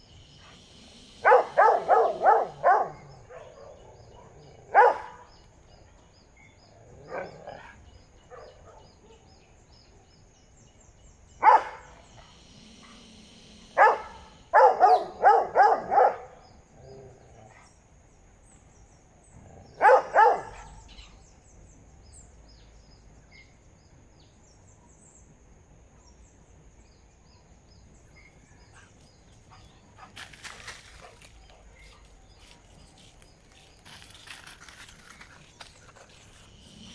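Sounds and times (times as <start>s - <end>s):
dogs barking: 1.2s - 5.4s, 7.0s - 9.2s, 11.4s - 12.0s, 13.8s - 16.4s, 19.6s - 20.9s.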